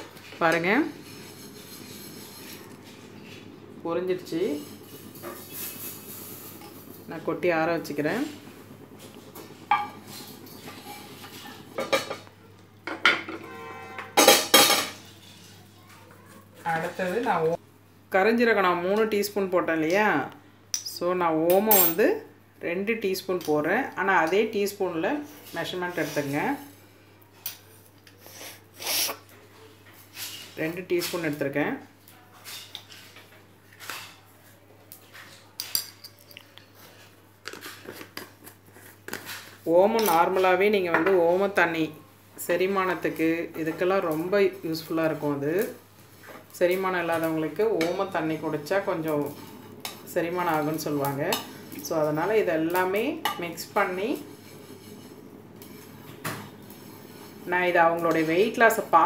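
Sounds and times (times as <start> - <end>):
wooden spoon scraping pan: 0.0 - 3.5, 9.0 - 12.0, 14.9 - 17.6, 46.0 - 59.0
metal kitchenware clinking: 12.9 - 15.5, 21.5 - 22.1.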